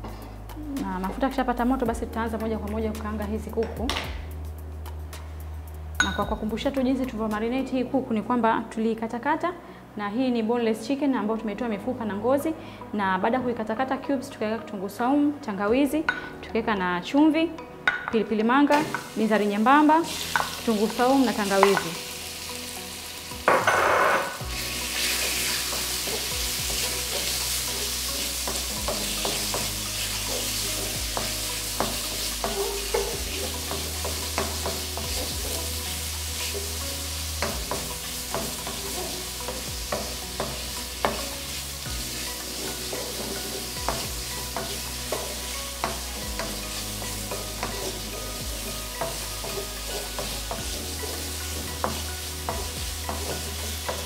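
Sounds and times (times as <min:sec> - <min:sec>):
chicken sizzling in hot oil: 0:18.7 - 0:54.0
spatula scraping and tapping pan: 0:25.0 - 0:36.8, 0:42.5 - 0:54.0.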